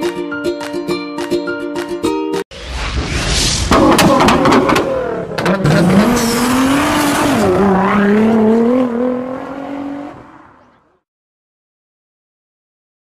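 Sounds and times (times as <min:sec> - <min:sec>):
engine revving: 0:03.6 - 0:10.8.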